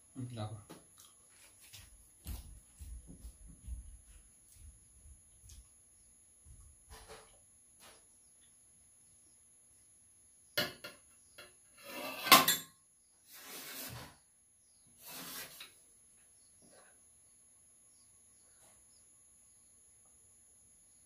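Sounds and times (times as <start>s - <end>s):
scraping on metal tray: 11.7s - 12.6s, 13.2s - 14.3s, 14.9s - 15.8s
spoon and cup clattering on tray: 12.0s - 12.8s.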